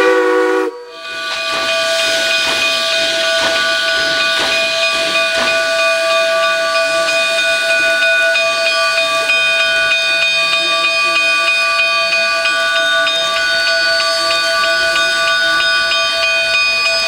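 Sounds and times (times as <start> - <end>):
steam whistle chord blast: 0.0 - 7.4
steam hissing: 0.0 - 17.0.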